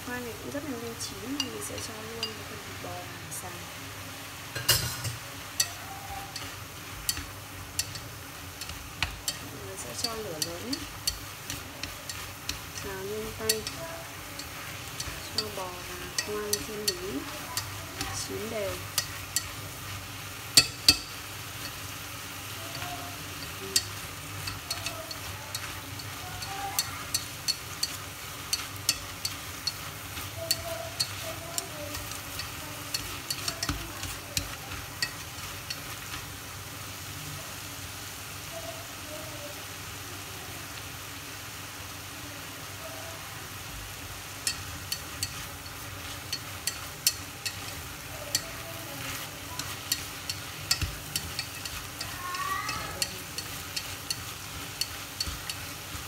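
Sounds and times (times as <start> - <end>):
food sizzling in a pot: 0.0 - 56.0
chopsticks clicking on metal pot: 1.3 - 2.4, 5.6 - 21.9, 22.7 - 36.3, 44.4 - 56.0.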